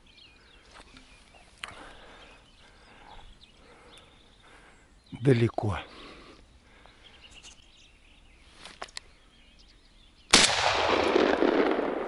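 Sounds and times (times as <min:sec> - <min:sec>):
shotgun shot with echo: 0:10.3 - 0:12.0.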